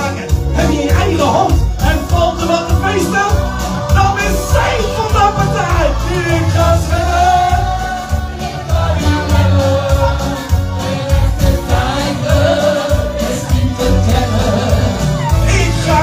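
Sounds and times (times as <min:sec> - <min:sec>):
man singing into microphone: 0:00.0 - 0:08.2, 0:11.6 - 0:16.0
music with heavy bass: 0:00.0 - 0:16.0.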